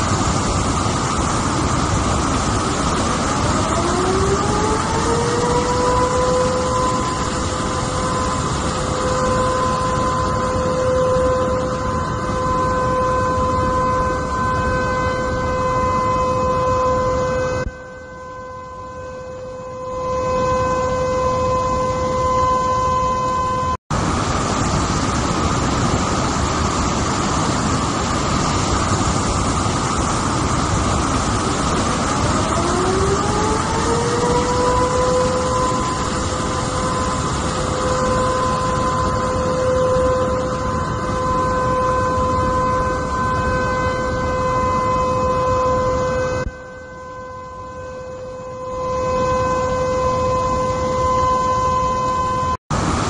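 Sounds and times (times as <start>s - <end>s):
rushing floodwater roar: 0.0s - 18.4s, 20.3s - 47.9s, 48.6s - 53.0s
steady high tone: 0.0s - 52.6s
water rushing over rocks: 23.9s - 34.8s.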